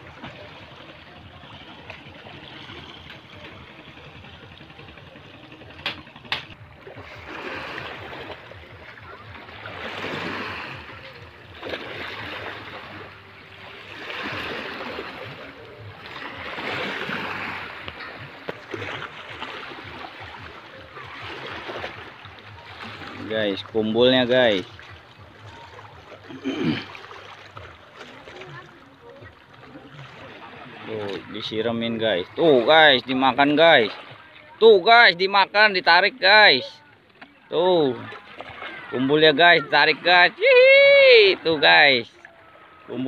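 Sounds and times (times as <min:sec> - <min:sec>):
small waves washing against rocks: 0:00.0 - 0:26.2.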